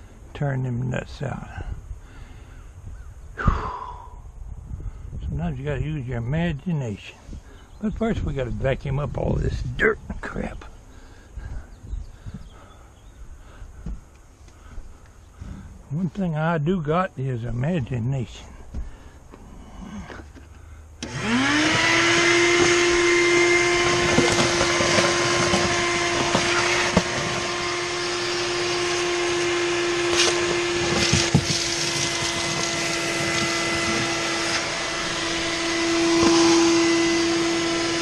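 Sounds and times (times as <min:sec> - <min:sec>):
debris rattling up vacuum hose: 0:20.1 - 0:38.0
vacuum cleaner motor whining: 0:21.0 - 0:38.0.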